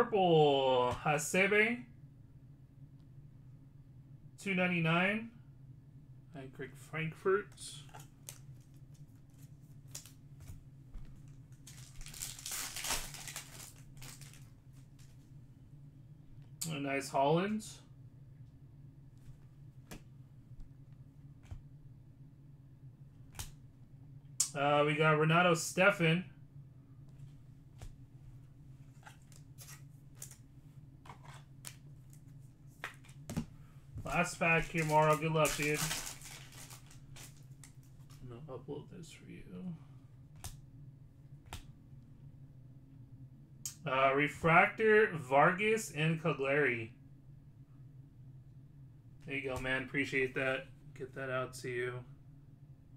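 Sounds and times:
steady low hum: 0.0s - 52.9s
cards rustling and clicking: 11.2s - 15.2s, 28.8s - 30.4s, 31.1s - 38.2s
foil pack tearing and crinkling: 11.7s - 14.4s, 34.5s - 37.4s.

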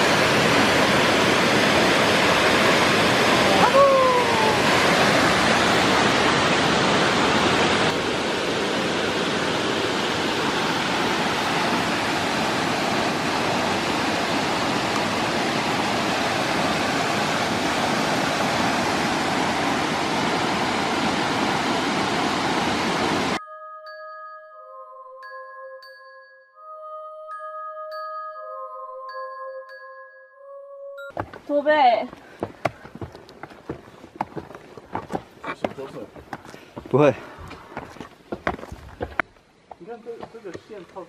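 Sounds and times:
waterfall rushing: 0.0s - 23.4s.

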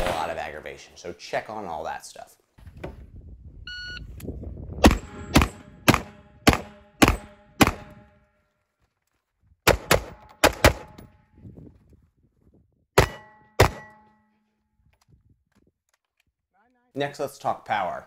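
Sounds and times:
rifle shots: 0.0s - 0.4s, 4.8s - 8.1s, 9.7s - 11.0s, 13.0s - 14.0s
short electronic beep: 3.7s - 4.1s.

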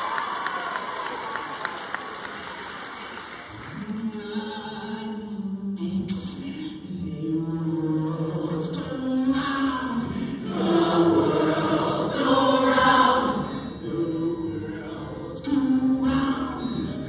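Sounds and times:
mixed-voice choir singing: 3.8s - 17.0s.

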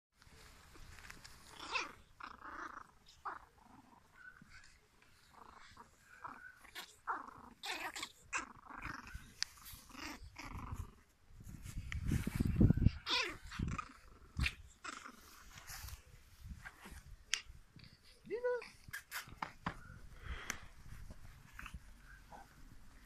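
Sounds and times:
puppy growls and yaps: 1.2s - 11.1s, 12.3s - 16.1s.

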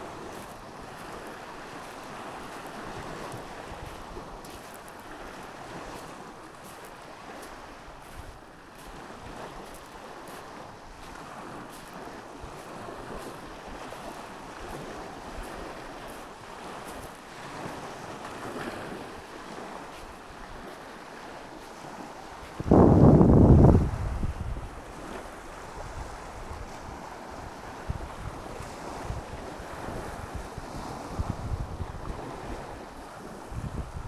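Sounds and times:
small waves on a sandy shore: 0.0s - 34.0s
wind buffeting microphone: 7.2s - 34.0s.

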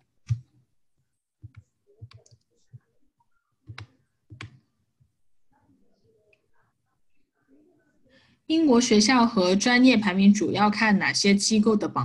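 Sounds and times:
keyboard and mouse clicks: 0.0s - 0.6s, 1.4s - 2.8s, 3.6s - 4.6s.

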